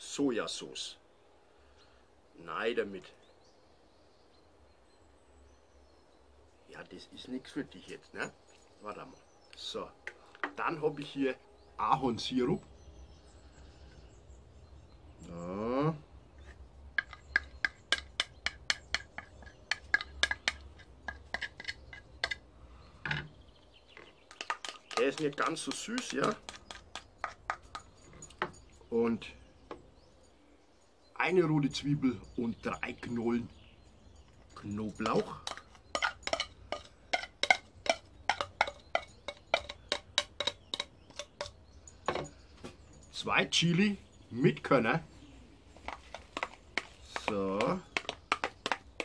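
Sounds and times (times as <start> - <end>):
metal spoon clinking in glass jug: 31.6 - 42.4.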